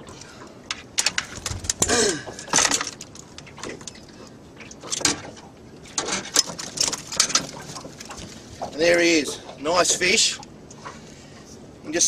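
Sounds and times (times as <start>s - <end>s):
fishing gear knocks and clicks: 0.7s - 4.1s, 6.0s - 8.8s.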